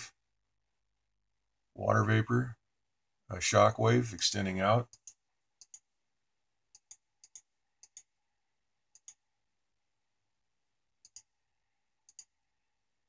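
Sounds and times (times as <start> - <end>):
computer mouse clicks: 4.9 - 5.9, 6.7 - 8.1, 8.9 - 9.2, 11.0 - 11.3, 12.0 - 12.4.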